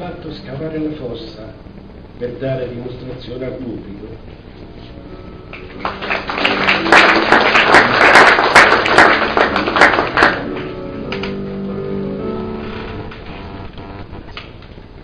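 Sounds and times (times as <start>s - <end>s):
quiet background music: 0.0s - 15.0s
audience applause: 5.5s - 10.6s.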